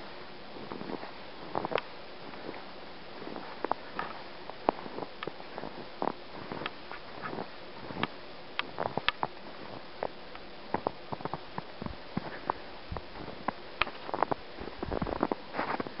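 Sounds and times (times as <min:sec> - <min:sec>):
steady hiss: 0:00.0 - 0:16.0
footsteps in snow: 0:00.6 - 0:08.0, 0:10.7 - 0:16.0.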